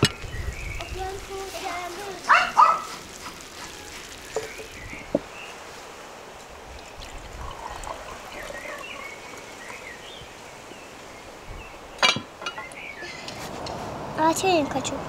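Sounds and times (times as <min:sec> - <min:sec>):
drink pouring into glass: 0:06.6 - 0:10.2.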